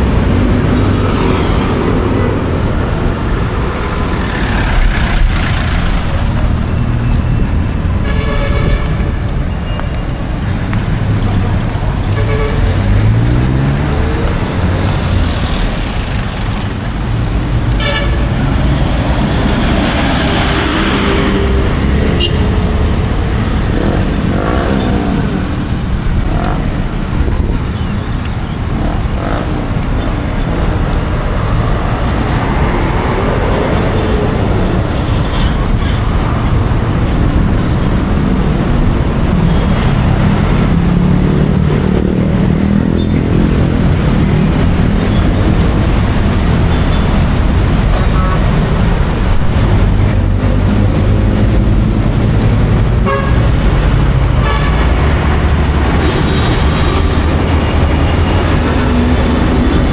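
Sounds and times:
traffic rumble: 0.0s - 59.9s
car horn toots: 22.1s - 22.5s, 53.0s - 53.5s.

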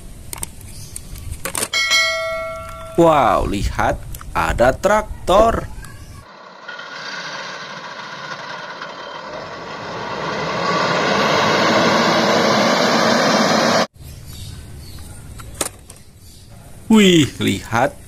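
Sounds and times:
tractor diesel engine running: 6.3s - 13.9s.

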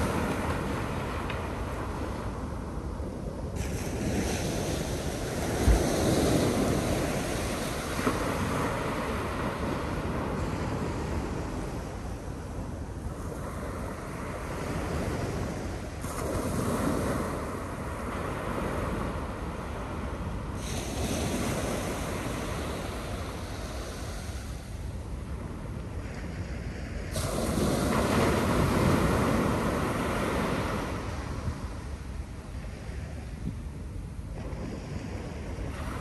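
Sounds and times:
surf breaking on beach: 0.0s - 2.5s, 3.6s - 12.0s, 13.1s - 24.8s, 26.0s - 31.9s
wind rumbling on microphone: 0.0s - 36.0s.

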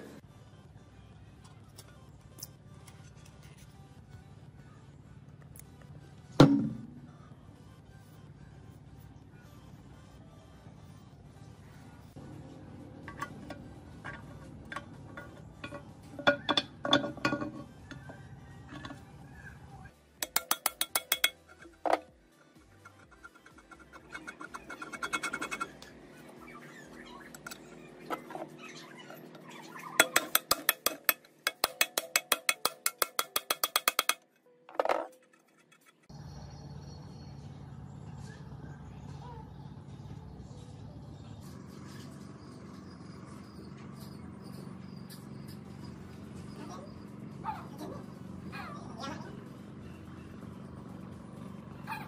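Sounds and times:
metal parts clinking: 13.1s - 18.1s.

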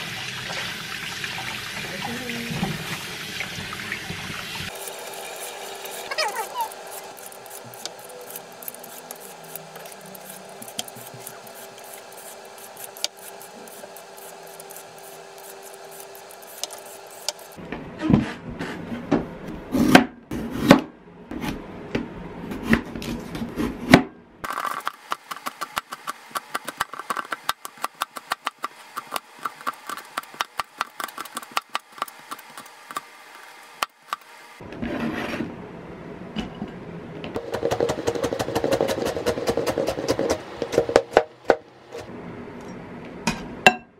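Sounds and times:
vegetable peeler scraping carrot: 4.7s - 17.6s, 24.5s - 34.2s, 37.4s - 41.1s
cleaver chopping on cutting board: 37.4s - 41.6s.

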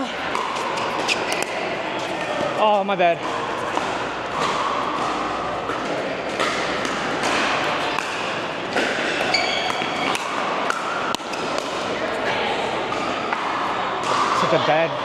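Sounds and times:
paddles hitting balls: 0.0s - 14.6s
balls bouncing on hard court: 0.0s - 14.7s
high squeak: 9.3s - 10.1s.

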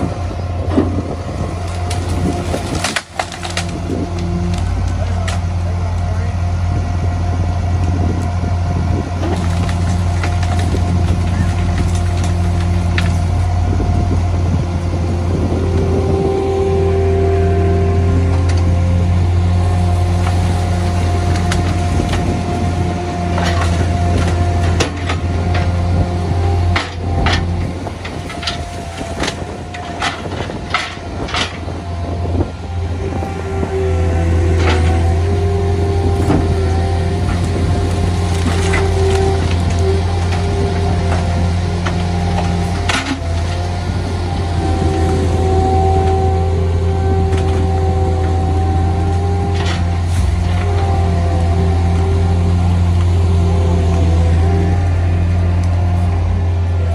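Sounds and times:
truck engine and hydraulics: 0.0s - 56.9s
branches cracking and snapping: 0.7s - 6.1s, 9.1s - 13.7s, 19.4s - 32.5s, 33.9s - 46.3s, 47.2s - 56.3s.

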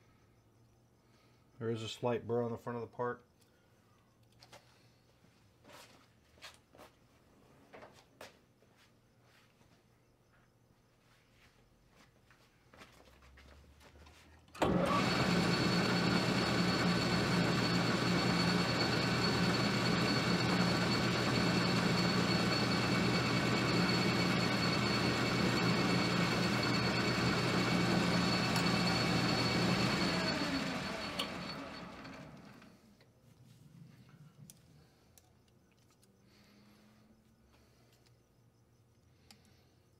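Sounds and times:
lathe motor humming: 14.6s - 32.7s.

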